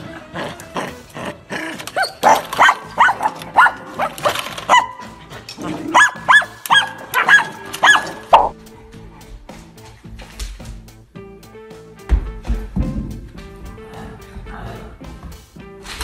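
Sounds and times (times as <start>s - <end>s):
dog barking high: 1.7s - 8.6s.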